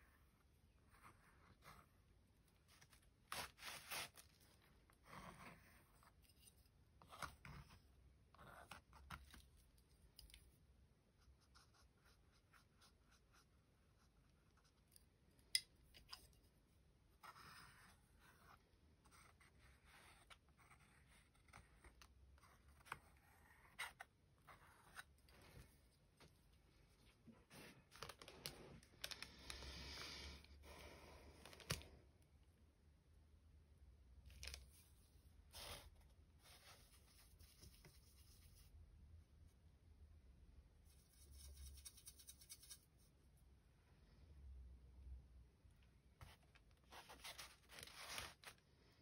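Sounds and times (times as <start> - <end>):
paintbrush scratching on paper: 11.2 - 14.9.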